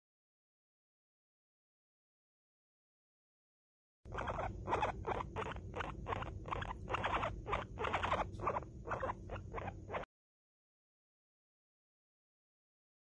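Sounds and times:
guinea pig rasping: 4.1s - 10.1s.

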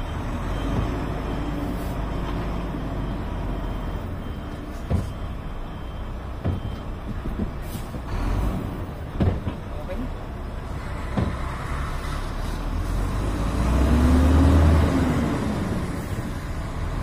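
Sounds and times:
short knocks: 9.1s - 9.7s, 11.1s - 11.5s.

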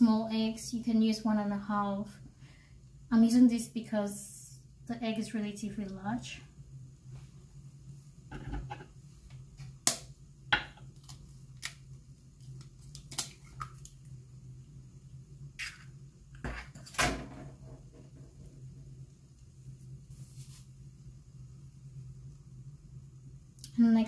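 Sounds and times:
low steady hum: 0.0s - 24.0s
hands rustling in flour: 19.7s - 20.8s.

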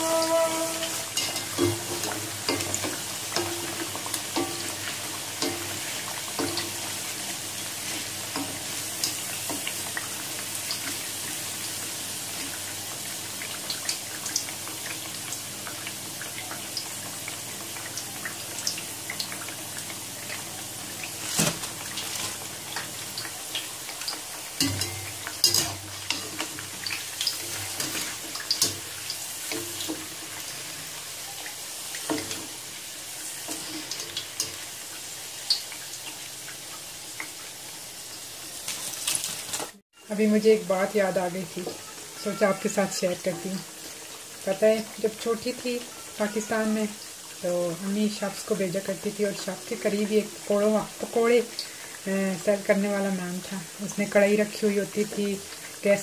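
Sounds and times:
skimmer scraping pan: 0.0s - 9.7s
fritters sizzling in hot oil: 0.0s - 56.0s.

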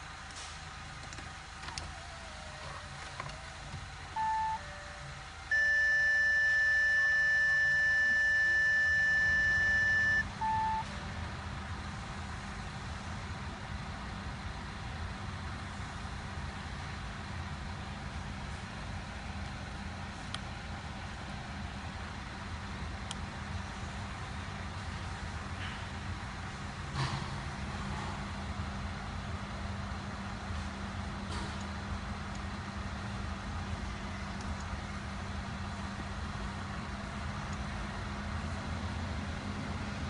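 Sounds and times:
steady low hum: 0.0s - 40.0s
short electronic beeps: 4.2s - 10.9s
loud steady electronic tone: 4.2s - 11.0s.

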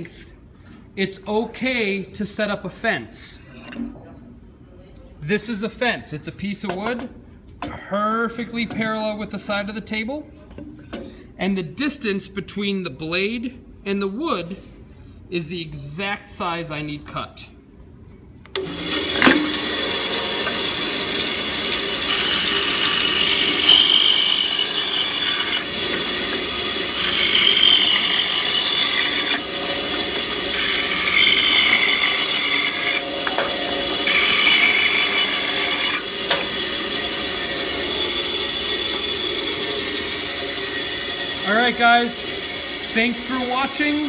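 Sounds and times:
band saw running: 18.6s - 44.0s
saw blade cutting wood: 18.6s - 44.0s.

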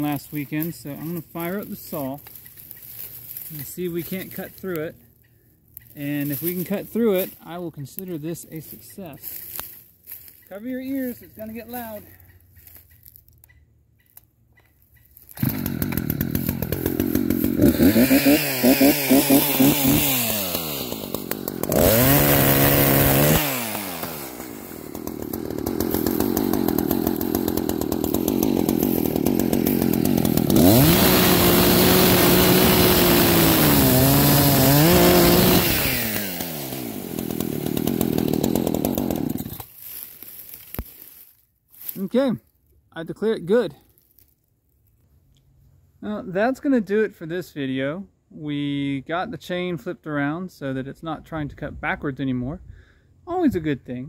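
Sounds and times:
chainsaw revving and cutting: 0.0s - 4.9s, 5.8s - 10.3s, 15.3s - 41.2s.

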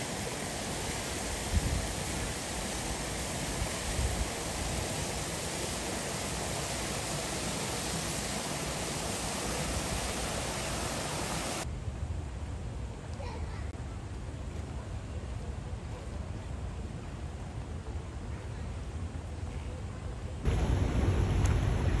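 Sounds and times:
water rushing: 0.0s - 11.6s, 20.5s - 22.0s
wind rumbling on microphone: 0.0s - 13.0s.

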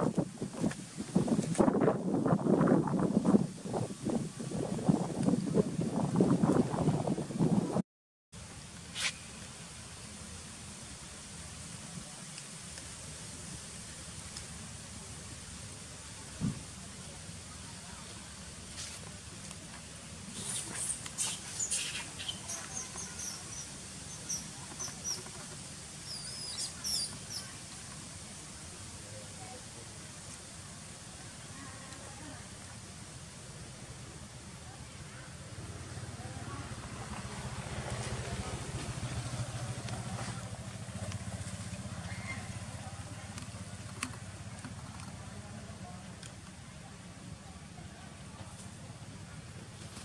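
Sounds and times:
steady outdoor background: 0.0s - 7.8s, 8.4s - 50.0s
small bird chirping: 20.3s - 25.3s, 26.0s - 27.6s.

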